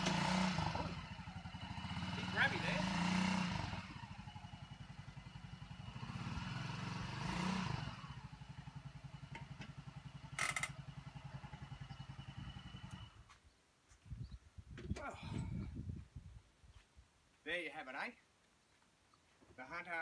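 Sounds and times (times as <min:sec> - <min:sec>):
buggy engine idling: 0:00.0 - 0:13.2.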